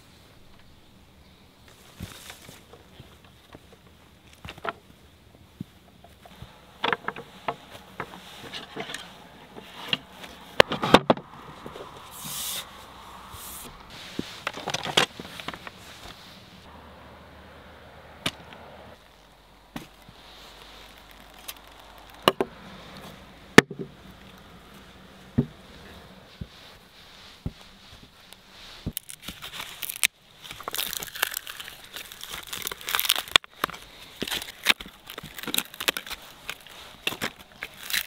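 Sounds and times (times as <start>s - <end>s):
rustling: 1.6s - 16.7s, 18.3s - 38.0s
wooden knocks and clatters: 6.0s - 11.6s.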